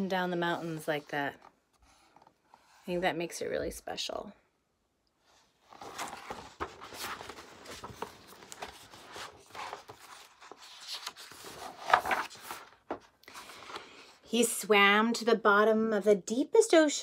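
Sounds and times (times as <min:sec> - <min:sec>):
book page turning: 0:05.6 - 0:14.0.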